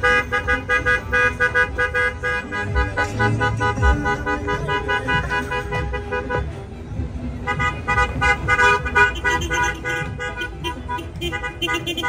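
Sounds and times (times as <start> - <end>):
car horns honking: 0.0 - 12.0
heavy traffic rumble: 0.0 - 12.0.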